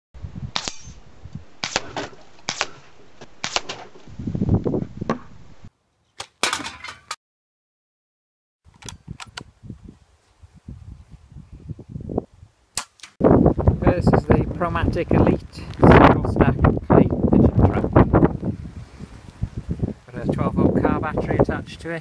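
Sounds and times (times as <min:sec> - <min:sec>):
airgun cracks and clicks: 0:03.4 - 0:03.8.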